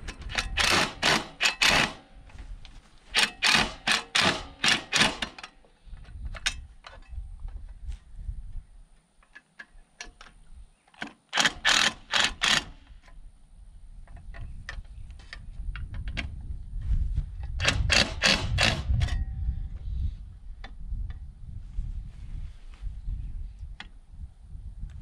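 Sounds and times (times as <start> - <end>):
cordless drill driving screws: 0.3 - 2.0, 3.1 - 5.5, 11.3 - 13.0, 17.6 - 19.0.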